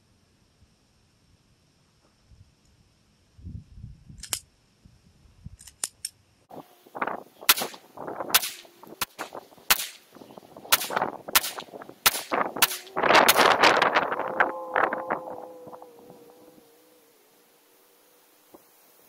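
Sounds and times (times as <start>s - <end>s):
pistol shots: 7.5s - 10.1s, 10.7s - 13.6s.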